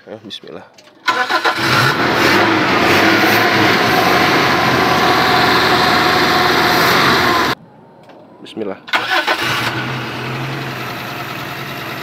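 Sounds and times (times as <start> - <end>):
engine cranking without starting: 1.0 - 7.6, 8.9 - 10.9.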